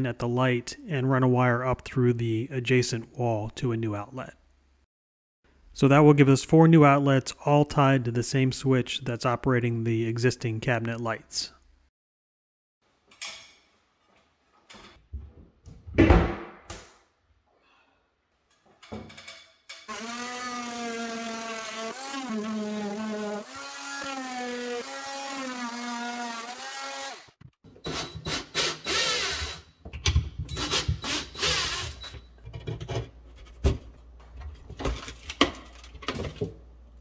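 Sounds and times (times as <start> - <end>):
multi-tool buzzing through drywall: 19.9 - 29.7, 30.5 - 32.2
cordless drill running: 27.9 - 29.6, 30.6 - 32.0
knocks and scraping of drywall: 32.4 - 36.6.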